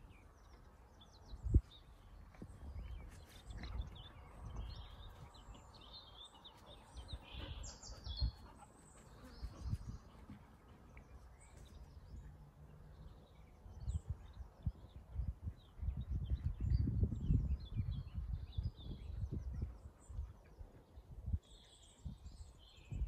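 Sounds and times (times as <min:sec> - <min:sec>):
small birds chirping: 0:00.0 - 0:23.0
low rumbles on microphone: 0:13.0 - 0:23.0.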